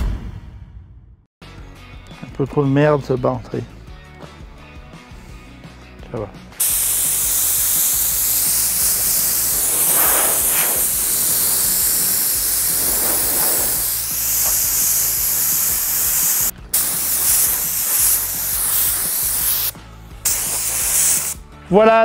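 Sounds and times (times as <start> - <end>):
spray gun hissing: 6.6 - 21.4.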